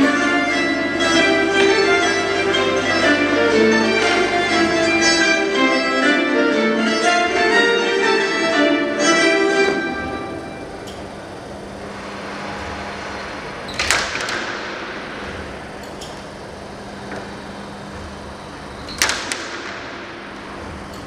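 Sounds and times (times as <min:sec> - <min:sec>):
steady low hum: 0:00.0 - 0:21.0
sharp cracks in reverberant hall: 0:11.9 - 0:16.6, 0:18.8 - 0:21.0.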